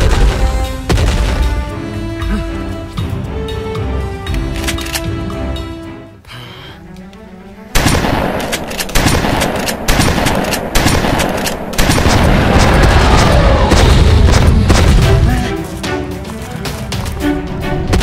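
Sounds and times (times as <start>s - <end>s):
sharp bangs: 7.7s - 15.3s.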